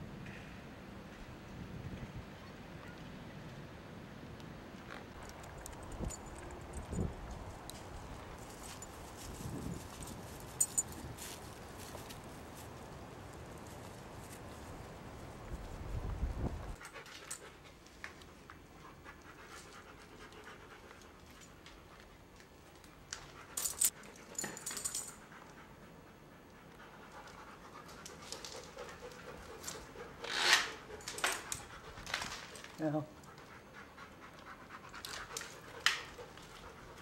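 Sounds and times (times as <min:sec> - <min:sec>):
dog panting: 0:25.1 - 0:30.2, 0:33.1 - 0:37.0.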